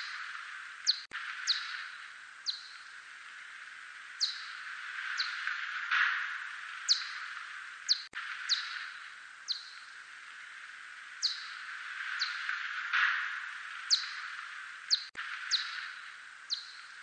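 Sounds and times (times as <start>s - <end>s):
bat echolocation chirps: 0.0s - 3.3s, 4.1s - 5.5s, 6.3s - 10.5s, 11.2s - 12.6s, 13.3s - 17.0s
steady hiss: 0.0s - 17.0s.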